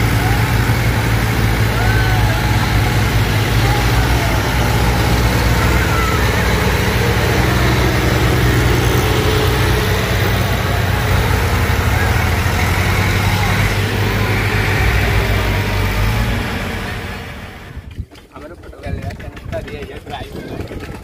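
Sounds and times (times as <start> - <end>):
tractor diesel engines droning: 0.0 - 18.1.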